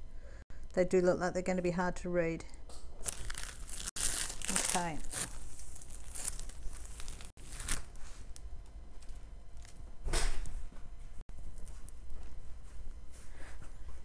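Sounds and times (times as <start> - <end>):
canvas crinkling: 3.0 - 8.1.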